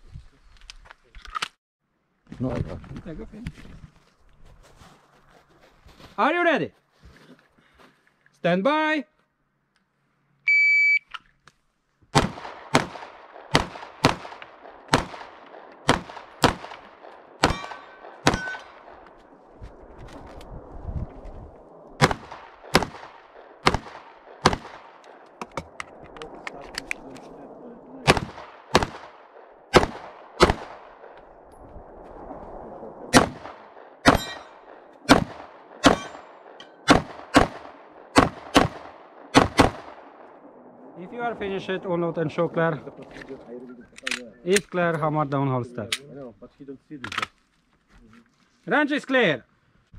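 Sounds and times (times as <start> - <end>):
shot timer beep: 10.5 - 11.1
pistol shots: 12.1 - 18.9, 22.0 - 25.1, 28.0 - 31.2, 33.1 - 40.2
metallic ring: 17.5 - 18.8, 34.1 - 34.5, 35.9 - 36.8.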